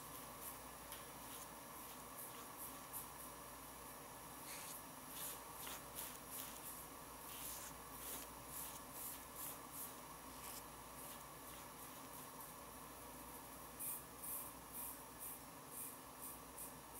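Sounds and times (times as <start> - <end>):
low steady hiss: 0.0 - 16.9
fingers rubbing shaving foam: 4.4 - 12.3.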